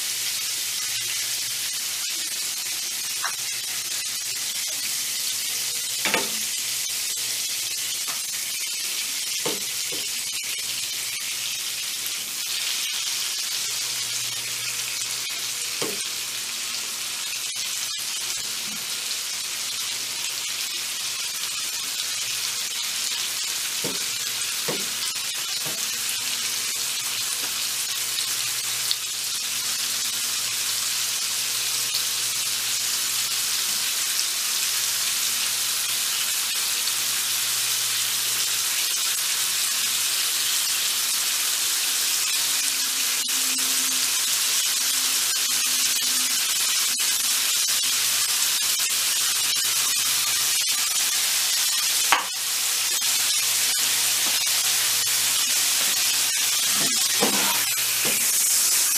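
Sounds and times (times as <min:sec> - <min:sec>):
meat sizzling in oil: 0:00.0 - 0:58.9.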